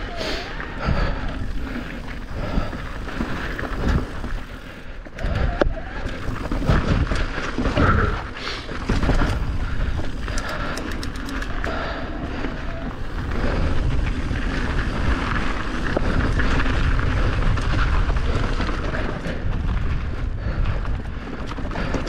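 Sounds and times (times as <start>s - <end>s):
tyres rolling over rocks: 0.0s - 11.6s
bike rattling: 0.0s - 22.0s
wind noise on microphone: 0.0s - 22.0s
sharp clicks: 10.2s - 11.7s.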